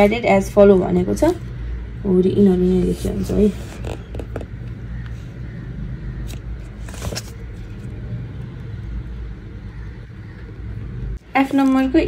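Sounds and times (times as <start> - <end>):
paper page turning: 3.2 - 4.5, 6.3 - 7.9.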